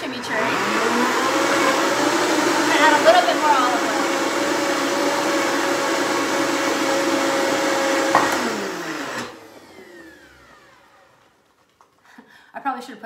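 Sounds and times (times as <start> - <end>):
blender motor running: 0.0 - 11.4.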